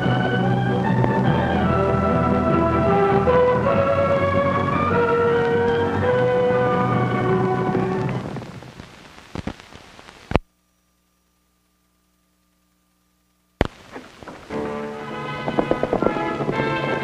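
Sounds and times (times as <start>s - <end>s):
theme music: 0.0s - 8.4s, 14.5s - 17.0s
old film soundtrack hiss and crackle: 0.0s - 17.0s
pops: 7.6s - 10.5s, 13.6s - 14.7s.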